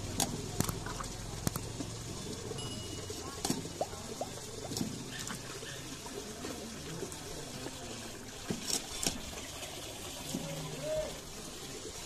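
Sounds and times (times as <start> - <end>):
water trickling into bucket: 0.0 - 12.0.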